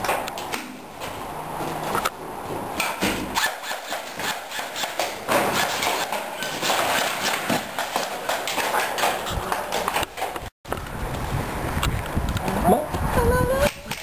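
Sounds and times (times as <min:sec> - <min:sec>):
sharp knocks and clacks: 0:02.8 - 0:10.5.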